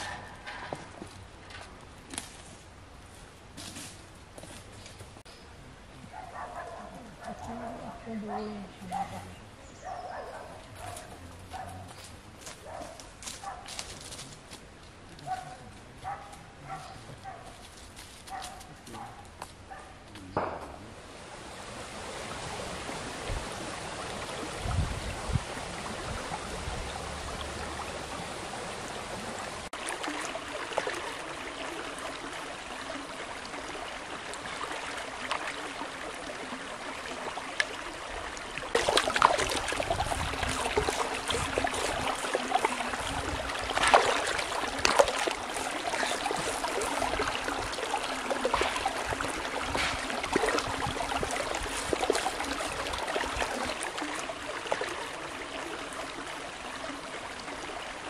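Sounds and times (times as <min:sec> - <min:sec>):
stream running over stones: 0:00.0 - 0:58.0
hands splashing in water: 0:38.7 - 0:55.0.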